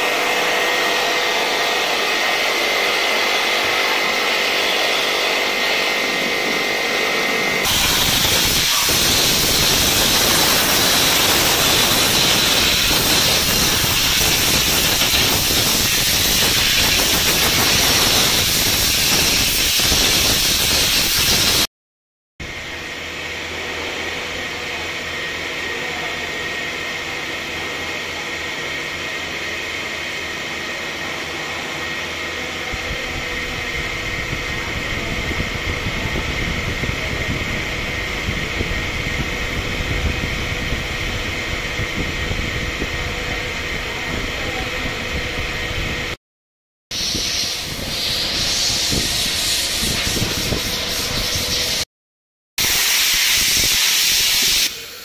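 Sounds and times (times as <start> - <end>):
steady drone with high whine: 0.0 - 21.6
compressed air hissing: 7.7 - 21.6, 47.0 - 51.8, 52.6 - 55.0.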